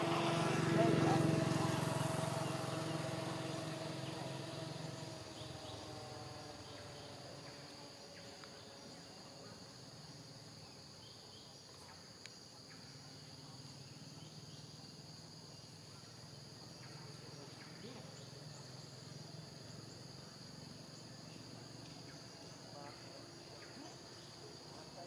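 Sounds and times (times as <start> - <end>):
motor engine: 0.0 - 9.0
insect chorus: 0.0 - 25.0.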